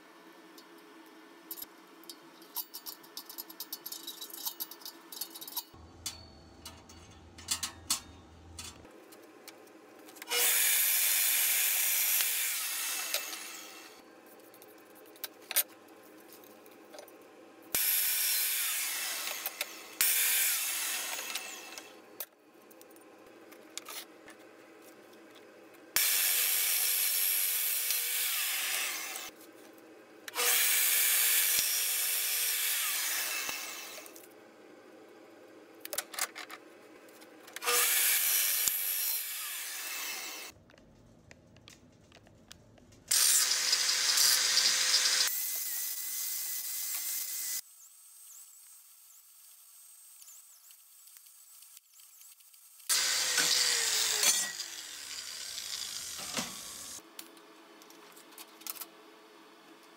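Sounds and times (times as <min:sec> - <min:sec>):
cut-off saw cutting steel: 0:10.2 - 0:14.0, 0:17.8 - 0:22.0, 0:26.0 - 0:29.3, 0:30.3 - 0:34.2, 0:37.6 - 0:40.5, 0:43.1 - 0:47.6, 0:52.9 - 0:57.0
angle grinder grinding metal: 0:10.3 - 0:14.0, 0:17.8 - 0:22.0, 0:26.0 - 0:29.3, 0:30.3 - 0:34.2, 0:37.6 - 0:40.5, 0:43.1 - 0:47.6, 0:52.9 - 0:57.0.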